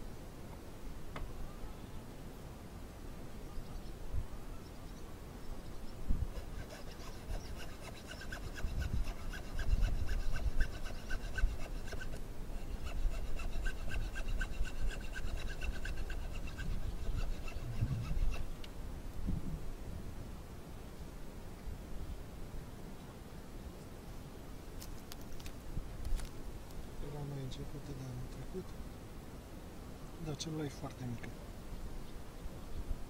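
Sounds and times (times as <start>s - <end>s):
rhythmic scraping on wood: 6.3s - 18.6s.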